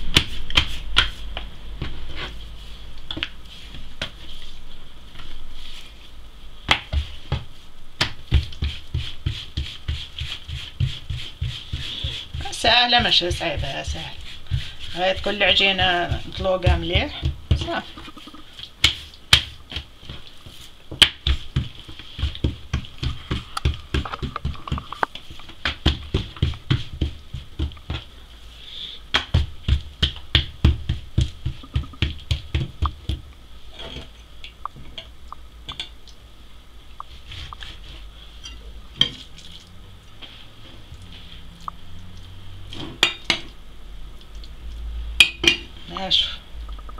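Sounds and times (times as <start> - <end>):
hands slapping dough on wood: 0.0 - 2.0, 6.7 - 18.2, 18.8 - 28.1, 29.1 - 33.3.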